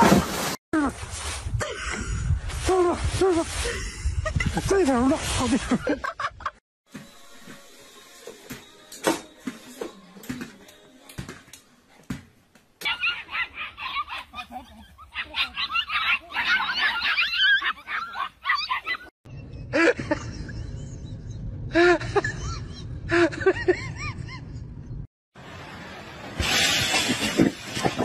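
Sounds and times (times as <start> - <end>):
puppies yapping and yelping: 12.8 - 19.1.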